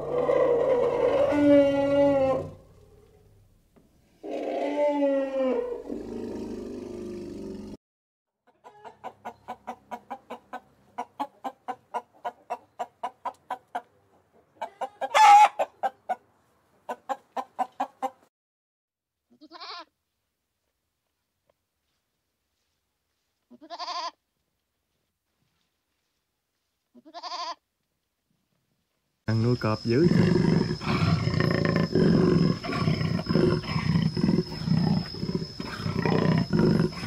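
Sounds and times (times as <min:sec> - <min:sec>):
harsh animal call: 0:00.0 - 0:03.0, 0:29.8 - 0:37.0
animal pulsed calls: 0:29.8 - 0:37.0.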